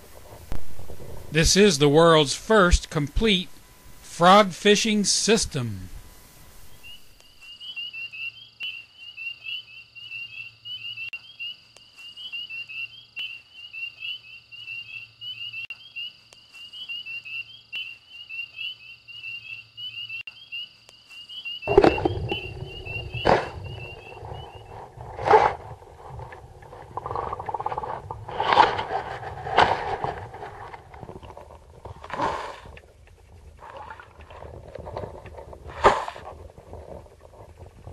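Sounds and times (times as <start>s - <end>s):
high chirping calls chorus: 21.7s - 24.8s.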